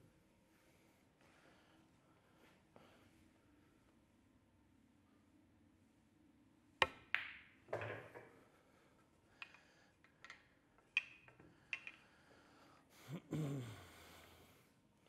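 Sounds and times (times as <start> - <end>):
cue tip striking cue ball: 6.8 - 8.4
pool balls clacking together: 6.8 - 8.4, 9.4 - 12.0.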